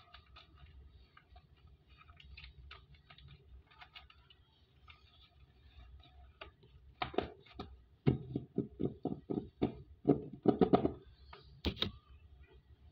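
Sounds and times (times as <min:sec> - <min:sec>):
paper rustling: 0:00.0 - 0:07.6.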